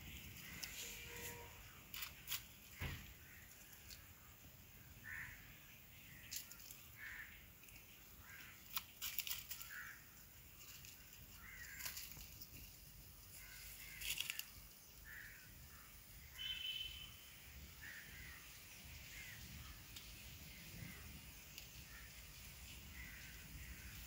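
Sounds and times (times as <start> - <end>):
plants rustling and clicking: 0.0 - 4.2, 6.1 - 14.8, 19.8 - 24.0
faint short bird calls: 13.4 - 18.4.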